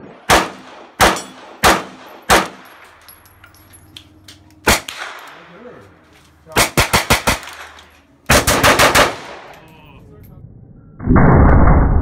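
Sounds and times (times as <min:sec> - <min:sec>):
rifle shot: 0:00.0 - 0:02.7, 0:04.6 - 0:05.4, 0:06.5 - 0:09.6
pistol shots: 0:00.0 - 0:02.9, 0:04.6 - 0:05.4, 0:06.5 - 0:09.6.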